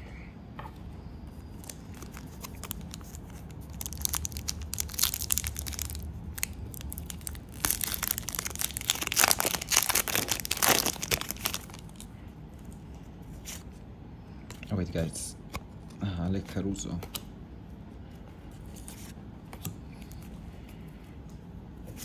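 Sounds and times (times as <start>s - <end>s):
plastic wrapper tearing and crinkling: 1.6s - 12.1s.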